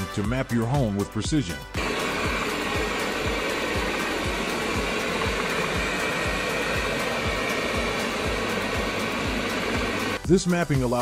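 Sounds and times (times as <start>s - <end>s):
background music beat: 0.0s - 11.0s
robot vacuum whirring: 1.8s - 10.2s.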